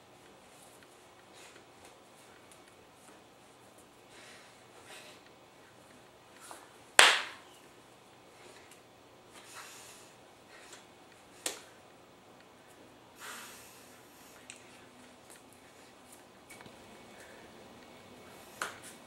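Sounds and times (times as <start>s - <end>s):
sharp hand claps: 7.0s - 7.5s.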